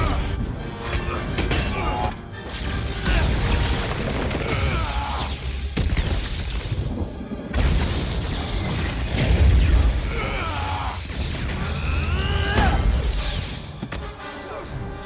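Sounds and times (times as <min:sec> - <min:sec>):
film music score: 0:00.0 - 0:15.0
electricity crackling: 0:02.4 - 0:13.8
heavy booms and crashing hits: 0:05.6 - 0:11.9.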